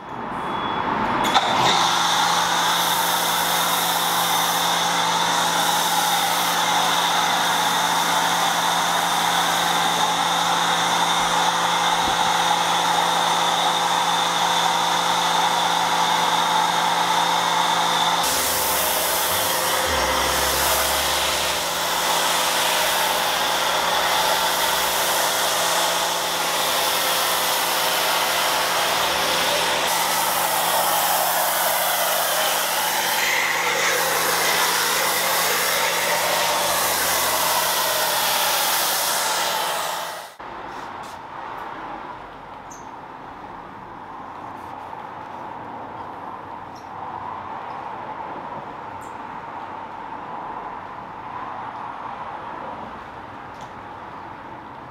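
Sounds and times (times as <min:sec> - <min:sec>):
pressure washer motor hum: 0:01.2 - 0:40.4
hiss of spray: 0:01.9 - 0:10.6, 0:18.2 - 0:41.2.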